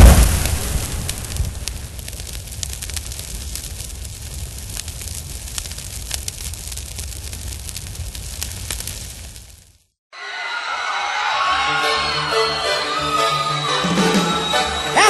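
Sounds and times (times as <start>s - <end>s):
fire burning and crackling: 0.0s - 10.0s.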